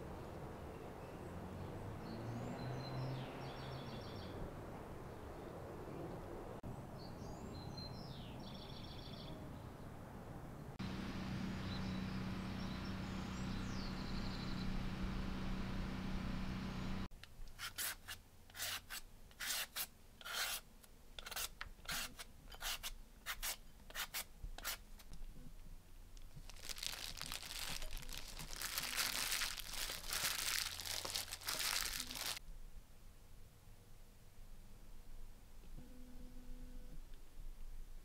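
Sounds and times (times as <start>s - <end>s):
plastic crinkling and rustling: 26.2s - 32.4s.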